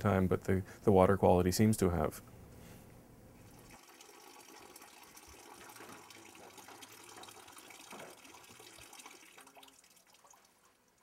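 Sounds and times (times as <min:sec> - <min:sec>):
stream running water: 0:03.5 - 0:11.0.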